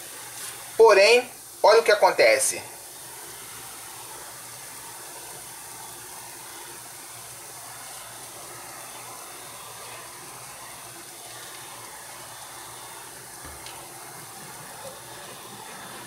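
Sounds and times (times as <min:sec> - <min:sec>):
acid fizzing on metal can: 0:00.0 - 0:16.0.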